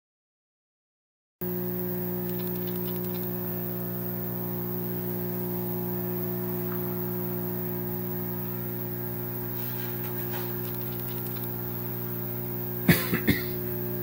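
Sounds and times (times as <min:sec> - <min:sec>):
buzzy mains hum: 0:01.4 - 0:14.0
faint hiss: 0:01.5 - 0:14.0
faint ticks: 0:01.9 - 0:07.4, 0:09.4 - 0:12.6.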